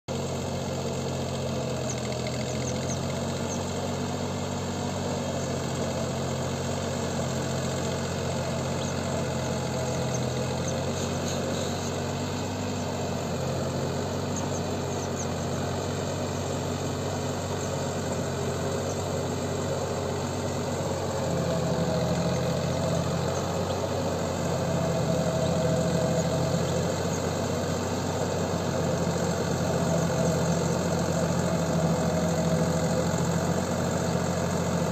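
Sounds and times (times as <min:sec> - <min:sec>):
tractor diesel engine running: 0:00.1 - 0:34.9.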